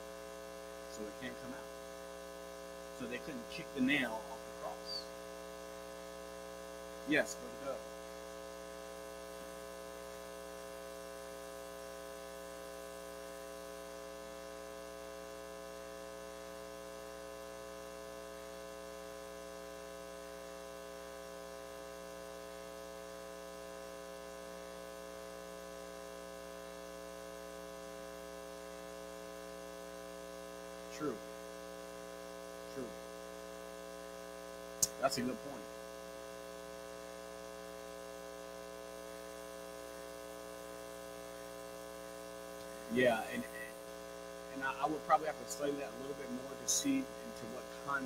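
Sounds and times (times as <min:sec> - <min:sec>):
faint hiss: 0:00.0 - 0:05.5, 0:06.9 - 0:23.6, 0:34.1 - 0:48.0
electrical hum: 0:00.0 - 0:48.0.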